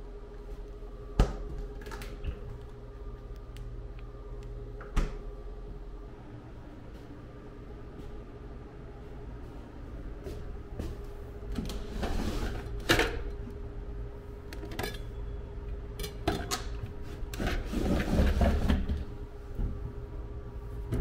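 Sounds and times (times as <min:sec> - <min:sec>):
steady hum: 0:00.0 - 0:21.0
drawer sliding open: 0:11.6 - 0:13.2, 0:17.4 - 0:19.0.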